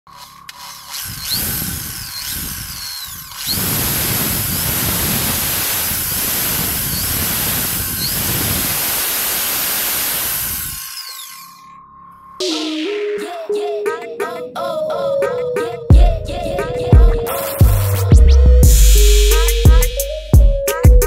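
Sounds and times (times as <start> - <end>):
electric drill whining: 0.1 - 12.3.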